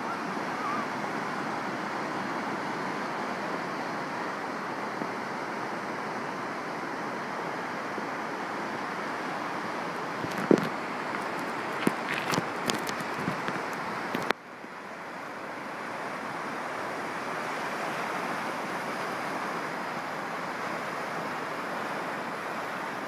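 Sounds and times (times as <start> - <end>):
wind on microphone: 10.1 - 14.3
surf breaking: 10.2 - 13.9.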